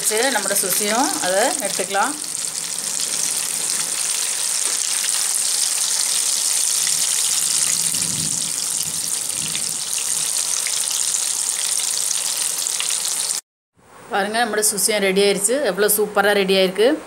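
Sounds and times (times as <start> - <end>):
oil sizzling and crackling: 0.0 - 13.4.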